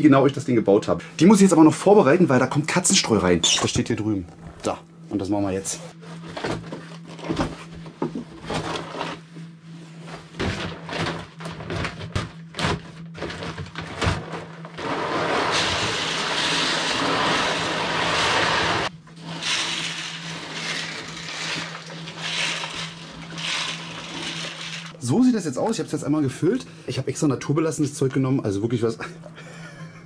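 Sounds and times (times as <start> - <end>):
ventilation fan hum: 0.0 - 30.0
pellets pouring onto plastic grid: 14.8 - 25.0
scratching of pellets by hand: 14.8 - 25.0.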